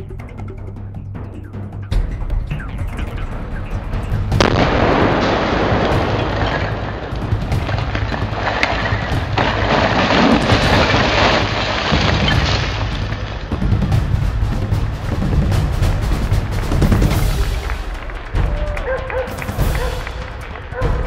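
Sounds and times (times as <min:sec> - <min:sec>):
background music: 0:00.0 - 0:21.0
demolition blast: 0:01.9 - 0:21.0
chimney crashing down: 0:04.4 - 0:20.8.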